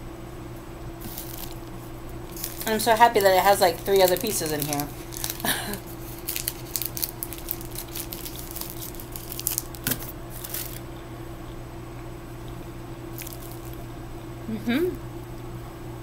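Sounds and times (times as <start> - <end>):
plastic wrapper crinkling: 1.0 - 10.8, 13.2 - 13.8.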